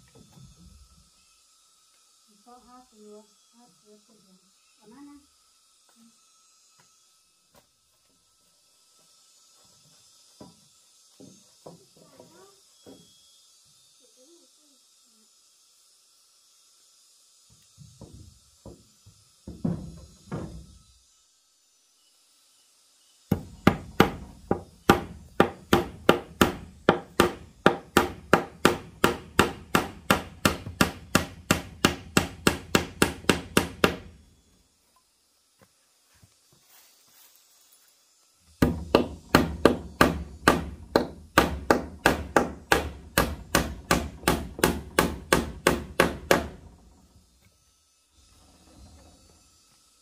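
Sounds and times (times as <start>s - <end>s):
hammer driving nails into wood: 23.3s - 34.1s, 38.6s - 46.6s.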